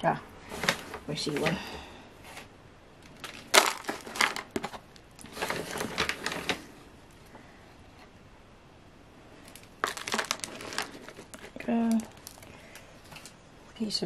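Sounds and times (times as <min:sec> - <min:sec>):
plastic tubs crinkling and clicking: 0:03.0 - 0:06.7, 0:09.4 - 0:13.4.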